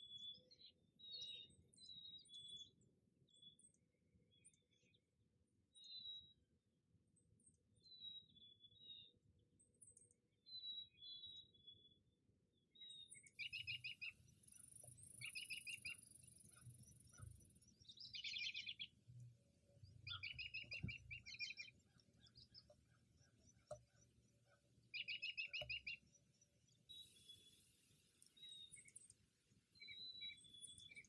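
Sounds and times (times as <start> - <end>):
small birds calling: 12.8 - 19.0, 19.8 - 29.2, 29.8 - 31.0.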